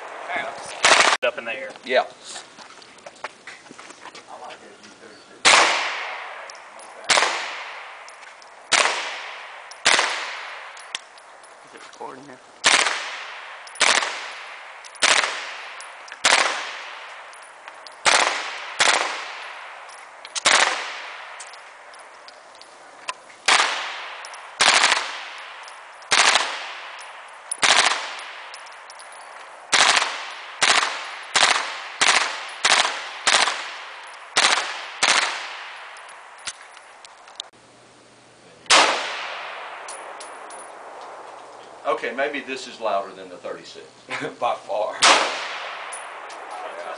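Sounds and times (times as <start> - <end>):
gunshots with ringing echo: 0.0 - 1.3, 5.4 - 11.6, 12.6 - 22.3, 23.5 - 36.6, 38.7 - 41.3, 45.0 - 46.9.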